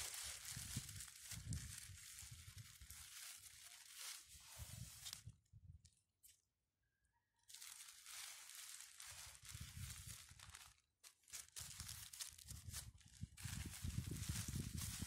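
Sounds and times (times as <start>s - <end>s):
plastic bag crinkling: 0.0s - 4.3s, 7.5s - 15.0s.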